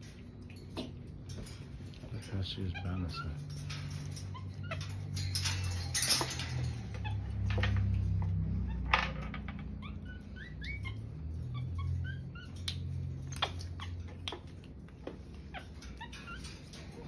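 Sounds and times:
wire cage clicks: 0.0 - 2.1, 2.9 - 17.0
monkey chirping: 9.8 - 14.7.

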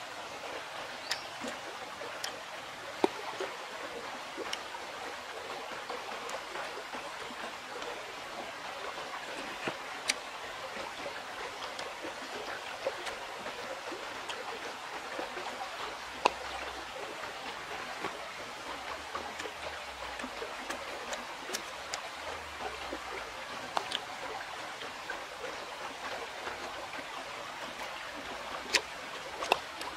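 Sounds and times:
river flowing: 0.0 - 29.9
fruit pulled apart clicking: 28.7 - 29.9.

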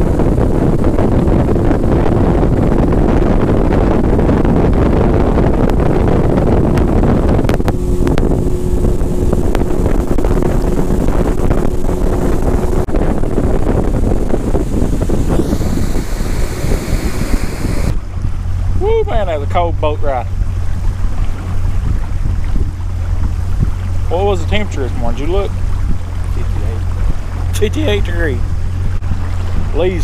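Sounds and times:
boat engine drone: 0.0 - 30.0
wind rumble on microphone: 0.0 - 30.0
steady hum: 6.5 - 29.4.

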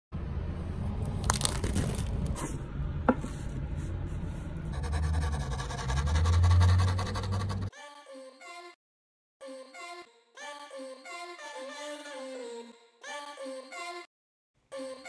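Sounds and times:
shrink-wrap crinkling and tearing: 1.1 - 2.4
fast scratching on board: 4.7 - 7.7.

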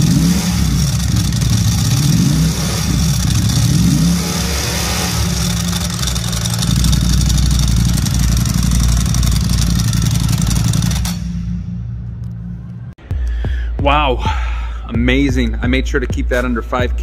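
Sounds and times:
motorcycle engine idling: 0.0 - 12.2
clutch rattle: 4.9 - 11.2.

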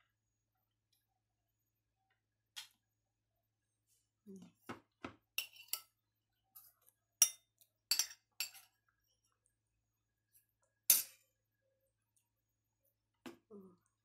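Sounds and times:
spoon clinking on glass plate: 5.4 - 5.9, 7.2 - 8.7, 10.9 - 11.2.

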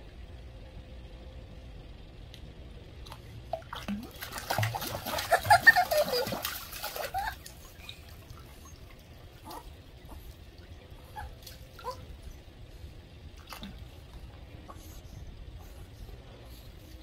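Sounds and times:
dog splashing in pool water: 3.0 - 9.6.

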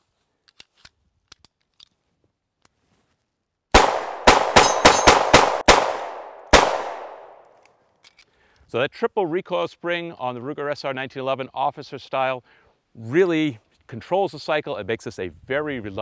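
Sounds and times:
pistol gunshots: 3.7 - 7.4.

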